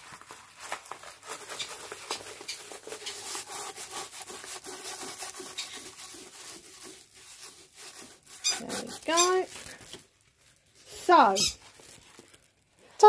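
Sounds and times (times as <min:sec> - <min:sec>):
canvas rubbing and rustling: 0:00.0 - 0:09.6
small scrapes and clicks: 0:00.7 - 0:10.1.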